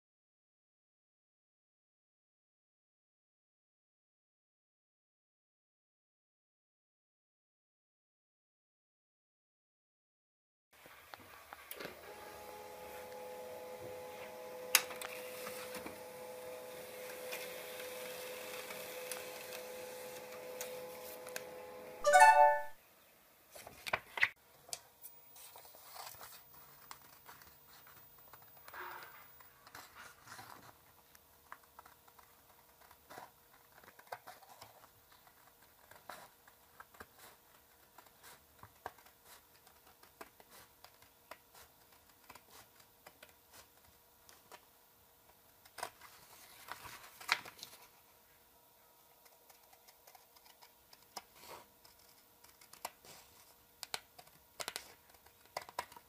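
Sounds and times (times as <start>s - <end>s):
paper rustling and crinkling: 14.9s - 16.0s, 23.5s - 24.4s, 25.4s - 44.7s, 45.5s - 48.2s.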